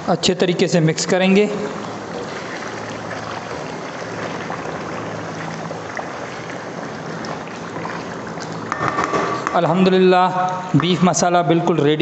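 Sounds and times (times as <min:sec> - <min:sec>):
curry sizzling and bubbling in pot: 0:01.1 - 0:09.6
wooden spoon stirring: 0:01.8 - 0:09.7.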